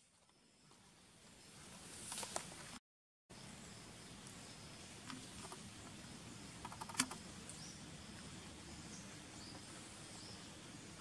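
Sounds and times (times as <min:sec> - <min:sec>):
steady background hiss: 0:00.0 - 0:11.0
sharp clicks: 0:06.6 - 0:07.2.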